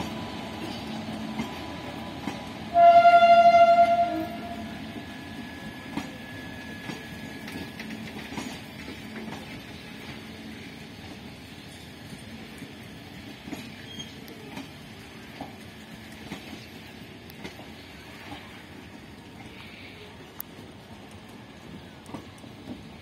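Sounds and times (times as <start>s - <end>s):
wheels clicking over rail joints: 0.0s - 4.5s, 6.8s - 23.0s
train wheels rumbling on rail: 0.0s - 23.0s.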